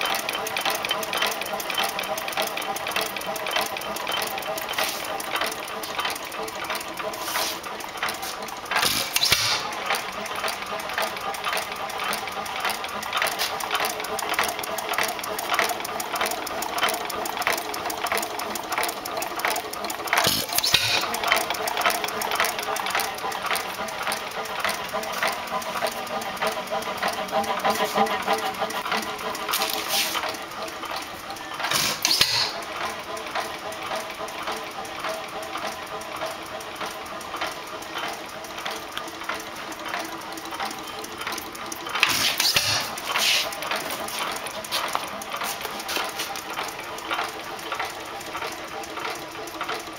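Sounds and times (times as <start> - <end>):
hit-and-miss engine clicking: 0.0 - 49.9.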